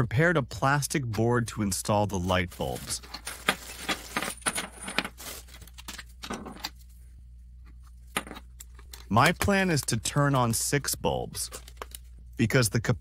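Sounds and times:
steady low hum: 0.0s - 13.0s
electrical parts clinking and rustling: 2.6s - 6.9s.

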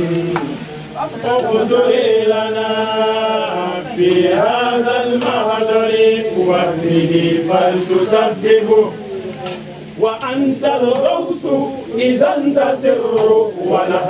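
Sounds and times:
person chanting: 0.0s - 9.2s.

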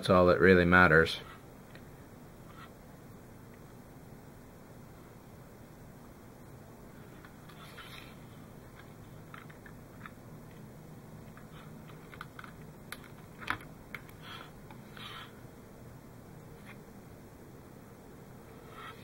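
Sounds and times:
wires and plastic clicking: 8.7s - 15.1s.

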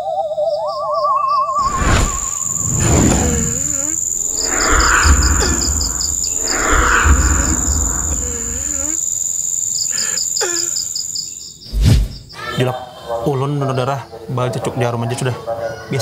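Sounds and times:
pulsing cricket trill: 1.2s - 12.4s
high-pitched insect drone: 1.3s - 11.6s
loud noisy swells: 1.6s - 9.0s.

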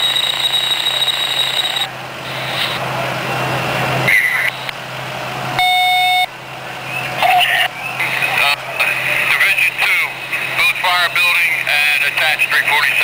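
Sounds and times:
electronic alarm tones: 0.0s - 2.8s, 5.6s - 6.3s.

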